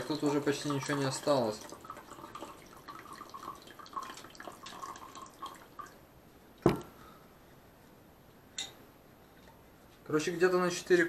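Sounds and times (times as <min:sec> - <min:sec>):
tea dripping into metal cup: 0:00.0 - 0:05.9
sharp knock: 0:06.6 - 0:06.9.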